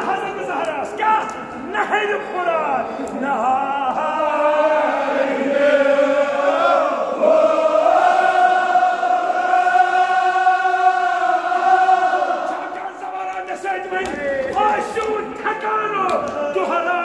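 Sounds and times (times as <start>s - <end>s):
men chanting together: 3.2s - 13.4s.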